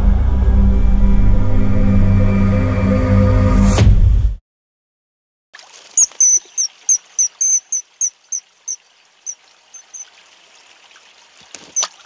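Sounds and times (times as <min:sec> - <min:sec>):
running water hiss: 0:05.6 - 0:12.0
shrill bird calls: 0:06.0 - 0:10.1.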